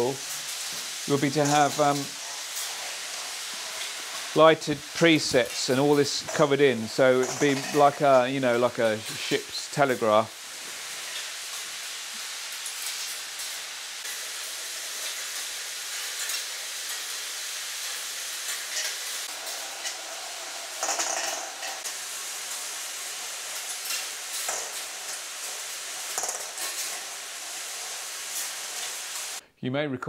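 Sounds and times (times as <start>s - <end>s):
steel balls rolling on wire tracks: 0.0s - 11.6s, 12.6s - 29.4s.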